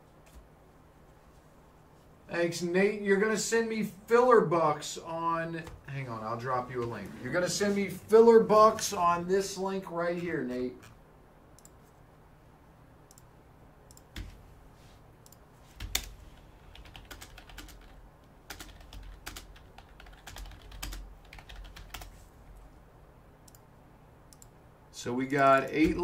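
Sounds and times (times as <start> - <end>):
typing on computer keyboard: 15.3 - 22.1.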